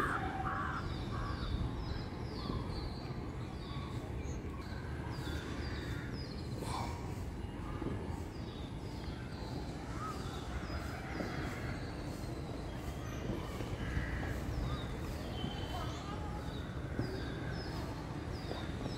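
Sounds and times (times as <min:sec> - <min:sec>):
crows cawing: 0:00.0 - 0:01.4
small birds chirping: 0:00.0 - 0:18.9.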